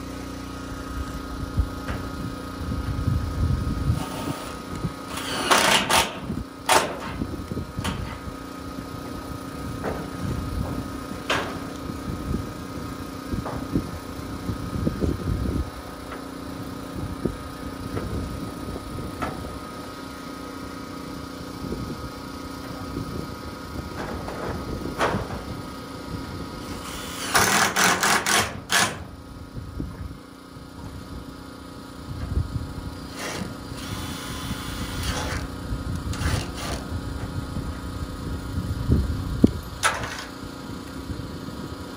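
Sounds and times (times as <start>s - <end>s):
steady hum: 0.0s - 41.9s
impact driver driving screws: 4.0s - 6.9s, 26.8s - 29.0s.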